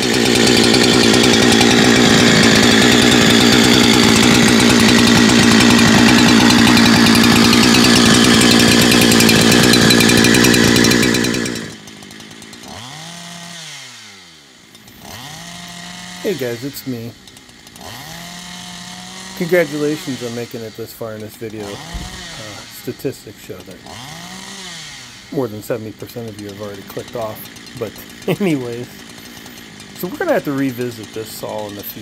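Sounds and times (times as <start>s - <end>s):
chainsaw cutting wood: 0.0s - 32.0s.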